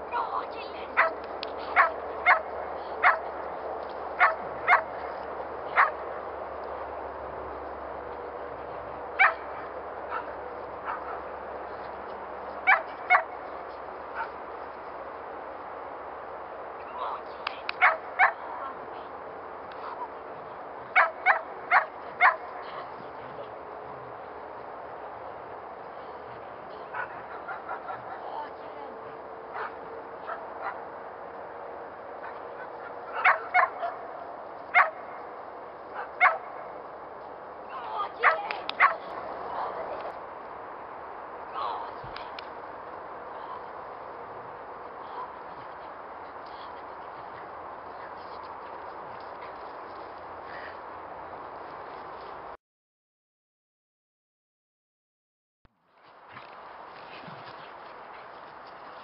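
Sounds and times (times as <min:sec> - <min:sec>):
dog barking: 0:01.0 - 0:03.3, 0:04.2 - 0:04.9, 0:05.8 - 0:06.0, 0:09.2 - 0:09.4, 0:10.1 - 0:11.2, 0:12.7 - 0:13.3, 0:17.8 - 0:18.4, 0:21.0 - 0:22.4, 0:26.9 - 0:28.2, 0:29.5 - 0:30.8, 0:32.2 - 0:34.0, 0:34.7 - 0:35.0, 0:36.0 - 0:36.5, 0:38.2 - 0:39.0
dog yipping: 0:09.2 - 0:09.4.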